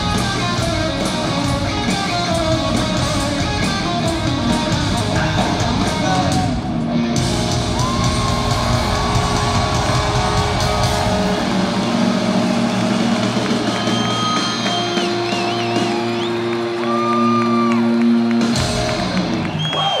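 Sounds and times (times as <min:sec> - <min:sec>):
rock band playing: 0:00.0 - 0:20.0
crowd shouting and whistling: 0:07.7 - 0:20.0.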